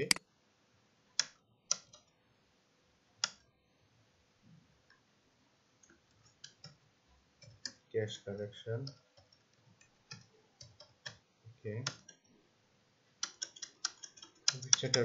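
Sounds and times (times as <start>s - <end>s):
mouse clicks: 0.0s - 0.2s, 3.2s - 3.4s, 13.2s - 15.0s
keyboard typing: 1.2s - 2.1s, 5.8s - 6.8s, 7.4s - 7.8s, 8.8s - 12.3s, 13.2s - 15.0s.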